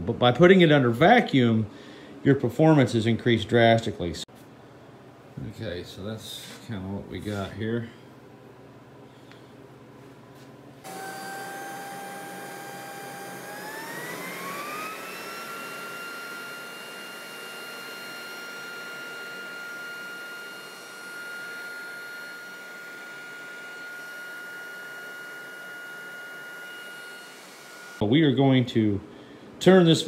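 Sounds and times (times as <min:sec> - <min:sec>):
electric blower whine: 0:10.8 - 0:28.0.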